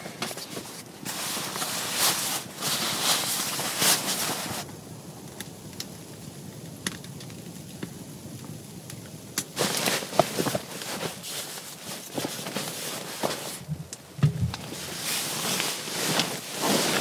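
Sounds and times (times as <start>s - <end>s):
nylon fabric rustling: 0.0s - 4.7s, 9.6s - 13.7s, 14.6s - 17.0s.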